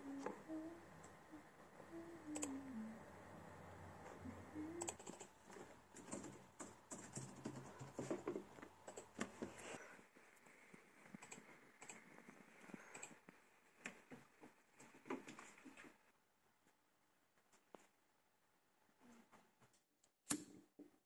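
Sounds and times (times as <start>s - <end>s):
typing on computer keyboards: 4.8s - 9.3s.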